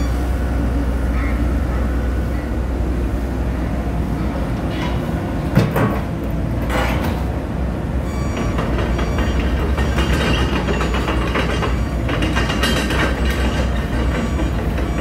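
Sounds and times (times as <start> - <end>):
excavator diesel engine droning: 0.0 - 15.0
rattling clatter: 8.2 - 15.0.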